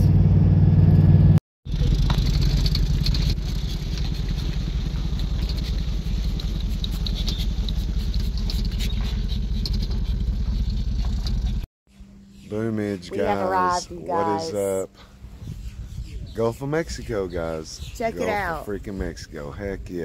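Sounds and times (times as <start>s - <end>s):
engine and road rumble: 0.0s - 20.0s
tyres crackling on gravel: 1.7s - 11.6s.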